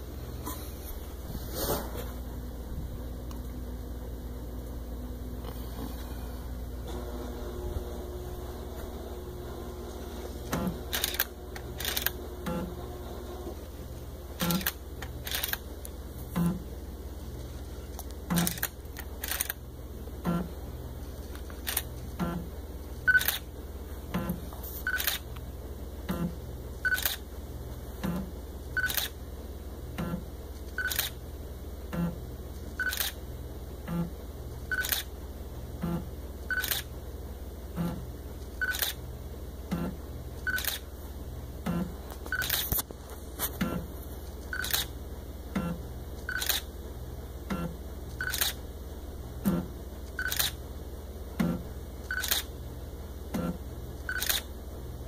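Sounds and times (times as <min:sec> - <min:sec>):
camera shutter firing: 0:10.9 - 0:12.2, 0:14.4 - 0:15.6, 0:18.4 - 0:19.6, 0:34.8 - 0:35.1, 0:36.6 - 0:36.9, 0:40.6 - 0:40.8, 0:44.6 - 0:44.9, 0:46.3 - 0:46.7, 0:48.2 - 0:48.6, 0:50.2 - 0:50.6, 0:52.2 - 0:52.5, 0:54.1 - 0:54.5.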